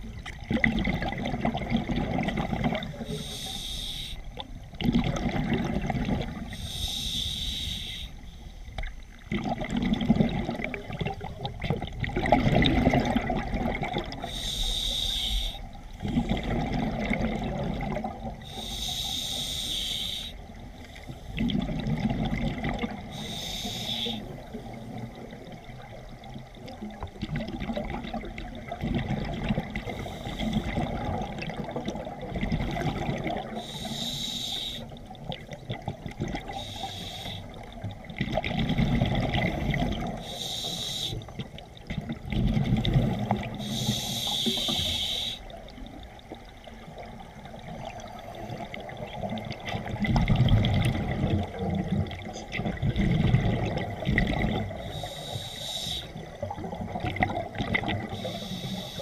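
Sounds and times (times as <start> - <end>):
hissing regulator inhalations: 3.1 - 4.3, 6.5 - 8.4, 14.2 - 15.7, 18.5 - 20.4, 23.1 - 24.4, 29.8 - 30.7, 33.6 - 35.0, 36.5 - 37.6, 40.2 - 41.4, 43.5 - 45.6, 54.8 - 56.3, 58.1 - 59.0.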